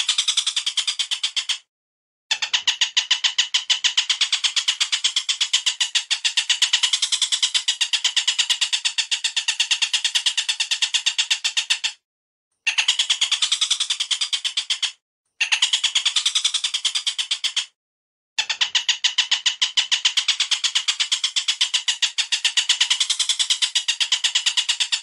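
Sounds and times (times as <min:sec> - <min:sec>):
bird calls in fast rattle: 0:00.0 - 0:01.7, 0:02.3 - 0:12.0, 0:12.6 - 0:17.8, 0:18.4 - 0:25.0.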